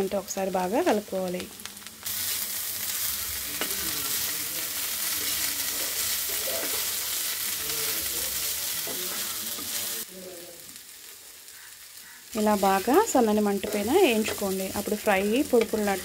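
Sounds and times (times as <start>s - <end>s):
vegetables sizzling in a pan: 0.0s - 16.0s
steel spoon stirring in a pan: 2.0s - 10.1s, 11.4s - 16.0s.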